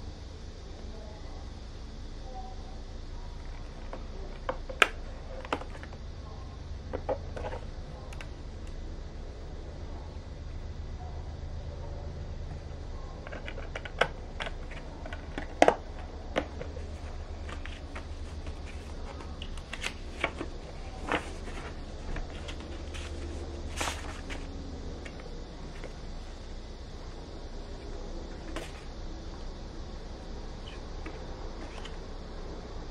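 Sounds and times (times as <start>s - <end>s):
low hum: 0.0s - 32.9s
paper rustling: 16.8s - 26.0s.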